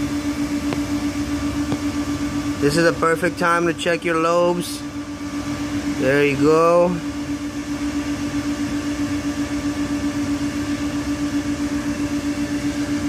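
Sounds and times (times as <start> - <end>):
pulsing mechanical hum: 0.0 - 13.0.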